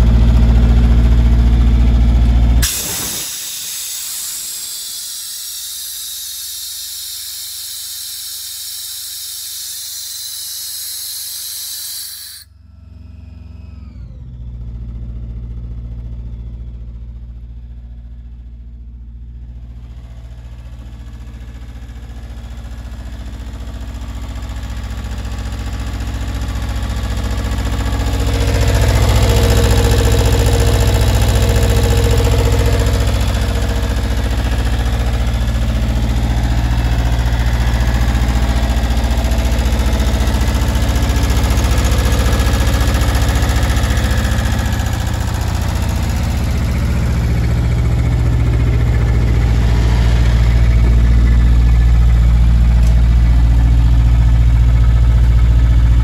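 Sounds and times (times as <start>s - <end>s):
diesel engine running: 0.0s - 56.0s
compressed air hissing: 2.6s - 12.5s
falling whistles: 2.7s - 12.5s.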